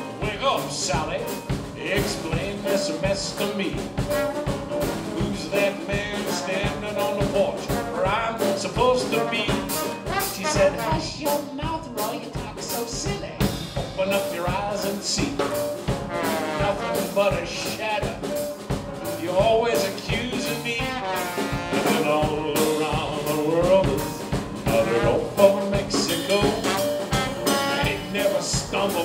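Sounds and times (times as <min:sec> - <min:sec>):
rhythm and blues band playing: 0:00.0 - 0:29.0.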